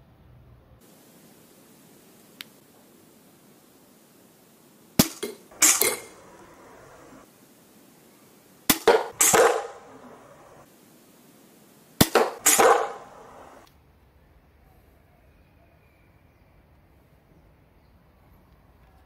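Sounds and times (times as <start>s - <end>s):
bolt striking wooden board: 5.0s - 7.2s, 8.7s - 10.6s, 12.0s - 13.6s
crossbow release snap: 5.0s - 7.2s, 8.7s - 10.6s, 12.0s - 13.6s.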